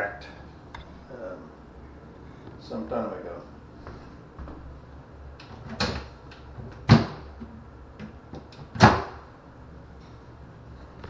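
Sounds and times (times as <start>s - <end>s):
cabinet door clicks: 6.8s - 7.2s.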